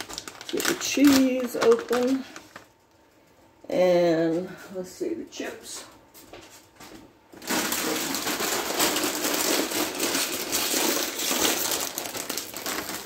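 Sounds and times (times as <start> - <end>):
chip bag crinkling: 0.0 - 2.8, 7.4 - 13.0.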